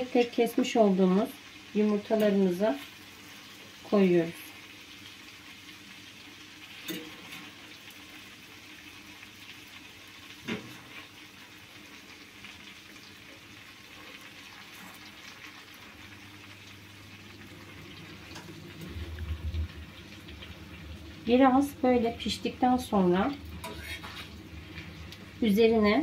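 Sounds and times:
butter sizzling in a pan: 0.0s - 26.0s
low bumps: 18.8s - 20.8s.

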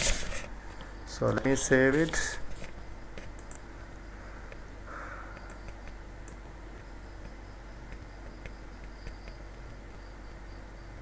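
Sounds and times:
low electrical hum and hiss: 0.0s - 11.0s
faint clicks: 3.1s - 3.6s, 5.2s - 6.4s, 7.2s - 9.8s.

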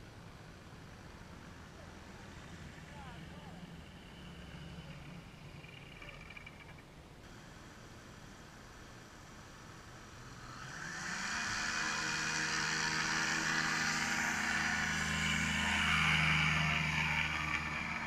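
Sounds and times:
ultralight trike engine running: 0.0s - 18.0s.

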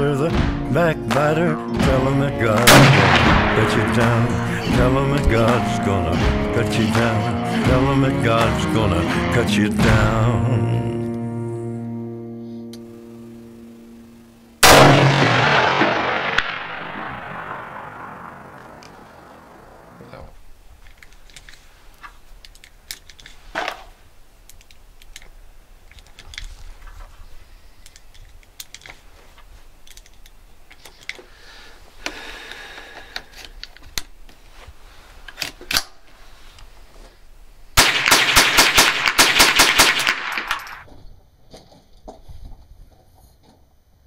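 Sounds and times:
rapid gunfire: 2.6s - 4.5s, 14.6s - 20.0s, 37.8s - 40.8s.

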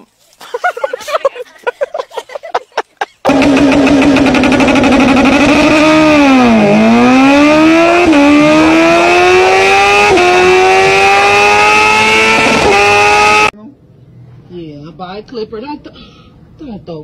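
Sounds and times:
vehicle engine accelerating: 3.3s - 13.6s.

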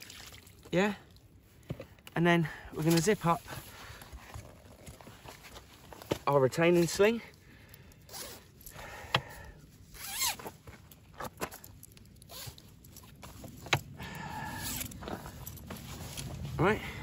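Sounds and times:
zip being pulled closed: 8.1s - 8.5s, 9.9s - 10.5s, 12.2s - 12.6s.

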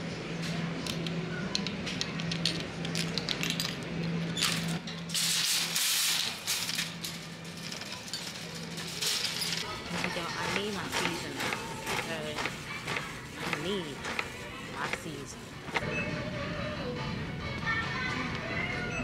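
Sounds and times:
shopping cart clicks and rattles: 4.4s - 15.8s.

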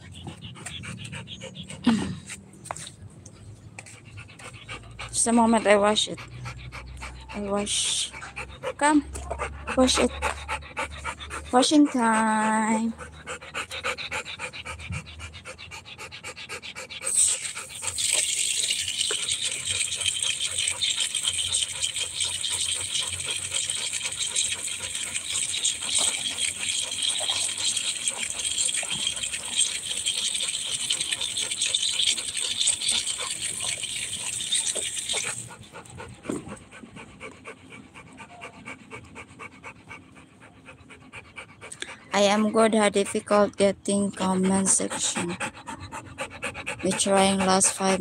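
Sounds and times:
dog panting: 0.0s - 48.0s
water running: 17.9s - 35.5s.

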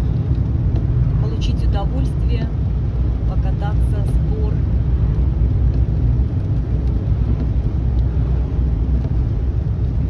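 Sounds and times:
car road rumble from inside: 0.0s - 10.0s.

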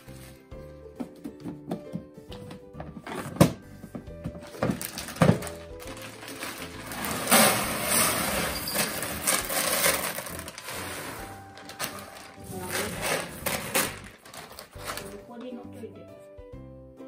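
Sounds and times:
litter pellets pouring into tray: 4.8s - 15.0s.

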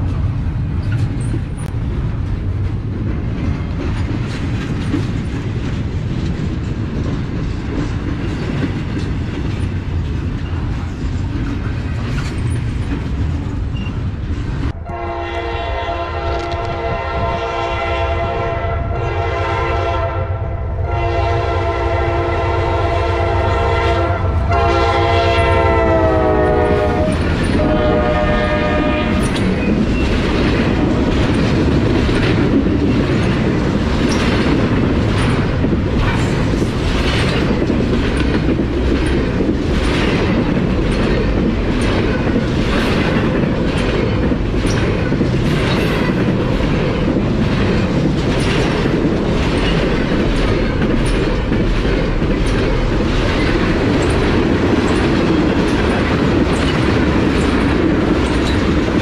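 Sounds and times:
freight train running on rails: 0.0s - 59.0s
locomotive air horn blasts: 14.8s - 29.4s.

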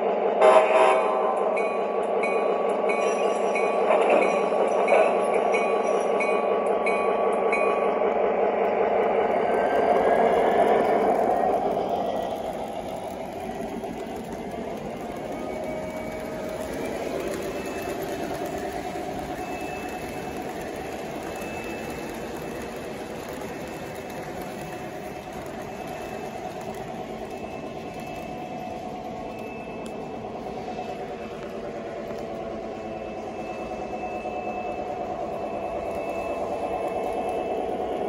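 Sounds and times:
electronic diesel engine sound: 2.0s - 38.0s
model train wheel rumble: 9.5s - 32.2s.

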